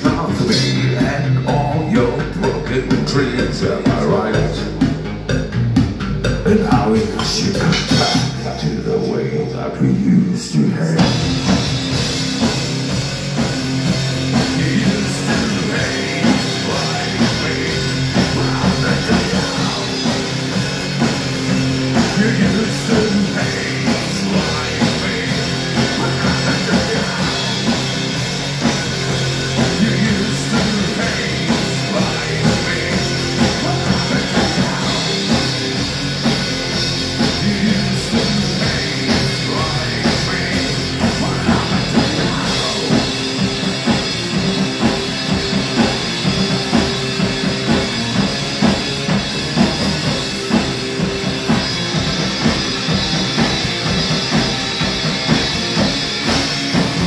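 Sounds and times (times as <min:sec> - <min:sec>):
pounding drums: 0:00.0 - 0:08.6, 0:11.0 - 0:57.0
distorted electric guitar: 0:00.0 - 0:57.0.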